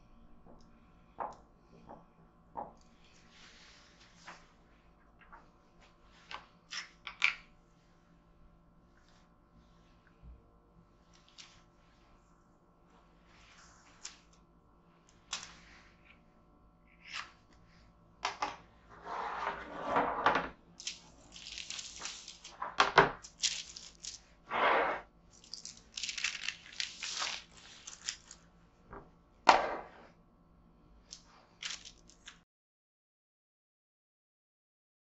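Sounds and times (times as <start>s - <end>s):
baking paper rustling: 20.8s - 28.5s, 31.2s - 32.4s.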